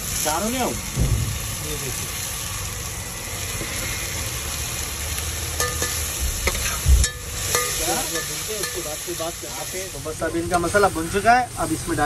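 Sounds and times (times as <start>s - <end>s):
masala sizzling in a pan: 0.0s - 12.0s
thump: 1.0s - 1.5s.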